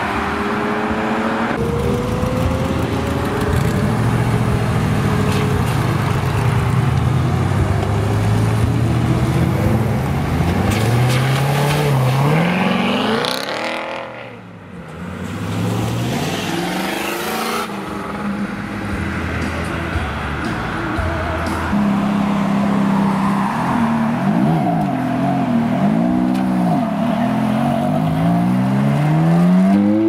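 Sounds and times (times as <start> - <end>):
car engine revving: 0.0 - 14.4.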